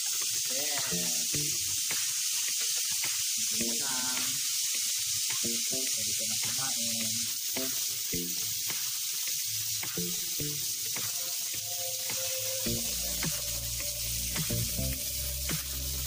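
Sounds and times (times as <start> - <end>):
fat popping and crackling: 0.0 - 11.3
meat sizzling on grill pan: 0.0 - 16.0.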